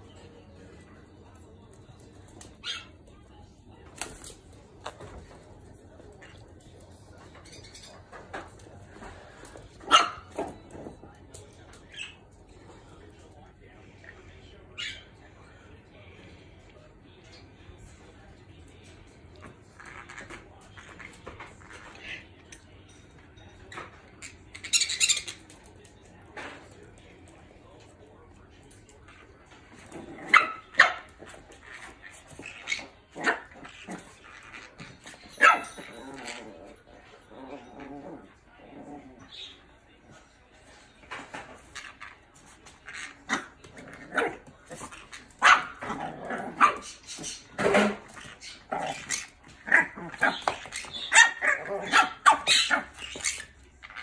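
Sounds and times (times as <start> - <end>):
small dog barking: 9.8 - 10.4, 45.4 - 45.8.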